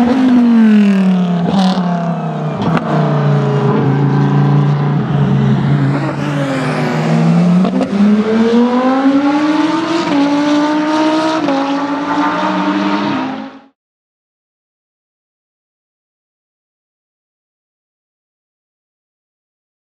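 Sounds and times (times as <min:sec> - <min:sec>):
race car engine accelerating: 0:00.0 - 0:13.8.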